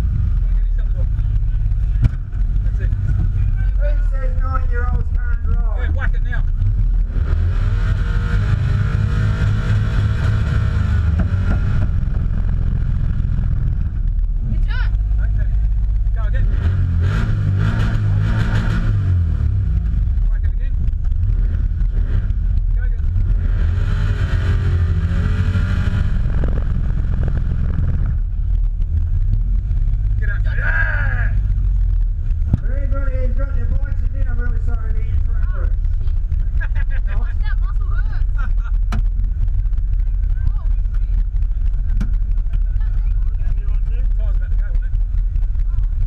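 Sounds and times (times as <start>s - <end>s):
car engine at high revs: 0.0s - 46.0s.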